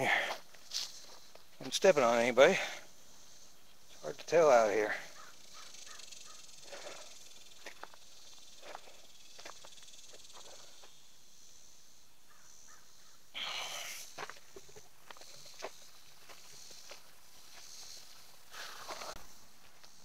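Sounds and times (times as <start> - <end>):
grass rustling: 0.0 - 13.2, 13.8 - 20.0
high insect chorus: 0.0 - 20.0
footsteps through grass: 0.3 - 1.7, 5.2 - 11.0, 14.1 - 20.0.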